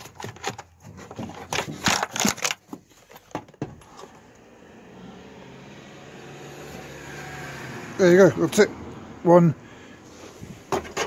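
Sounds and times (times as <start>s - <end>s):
plastic clips clicking and rattling: 1.3s - 2.8s.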